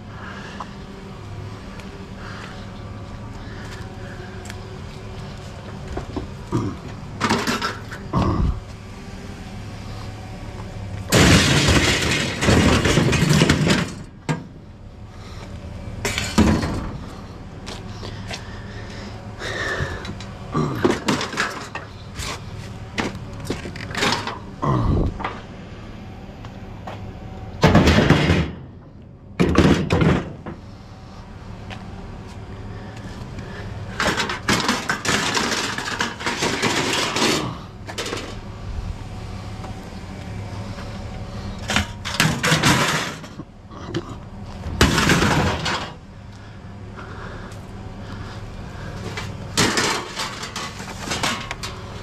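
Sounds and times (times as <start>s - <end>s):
scrap metal clanking and clattering: 5.6s - 8.1s, 11.1s - 14.6s, 16.0s - 17.2s, 19.6s - 24.5s, 27.6s - 28.7s, 29.4s - 30.6s, 33.9s - 38.4s, 41.6s - 46.0s, 49.0s - 52.0s.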